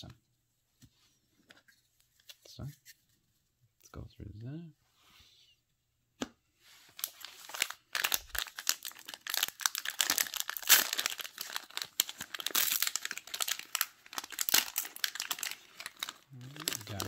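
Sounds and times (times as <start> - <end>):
plastic wrapper tearing and crinkling: 6.9 - 17.0.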